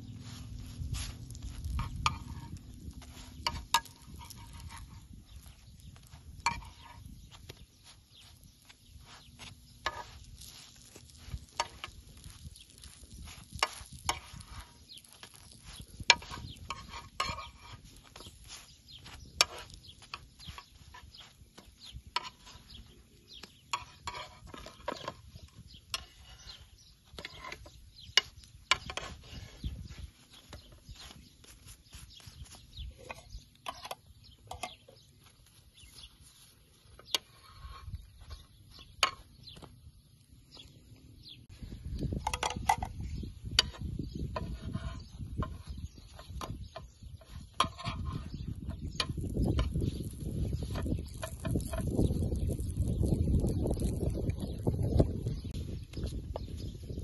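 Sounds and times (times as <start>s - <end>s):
crackling wood fire: 0.0s - 34.2s, 46.1s - 56.5s
metal spoon tapping on griddle: 1.6s - 2.6s, 3.4s - 7.0s, 16.0s - 22.8s.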